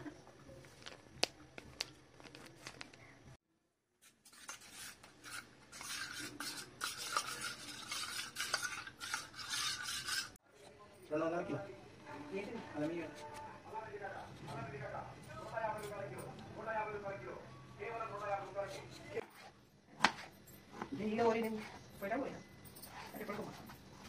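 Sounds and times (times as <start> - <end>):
spoon scraping and clinking in bowl: 4.3 - 10.4.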